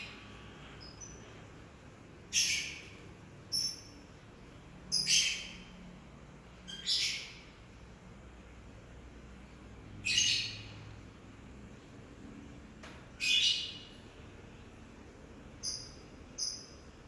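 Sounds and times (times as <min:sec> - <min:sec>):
bird chirping: 0:00.0 - 0:01.4, 0:02.3 - 0:04.2, 0:04.8 - 0:05.8, 0:06.5 - 0:07.6, 0:10.0 - 0:10.9, 0:13.2 - 0:14.1, 0:15.5 - 0:17.0.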